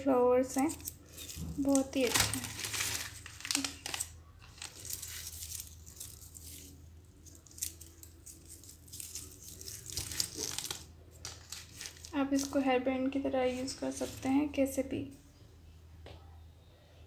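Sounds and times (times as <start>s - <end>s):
small crackles: 0.6s - 12.6s
paper rustling and crinkling: 0.6s - 12.7s, 13.4s - 14.5s.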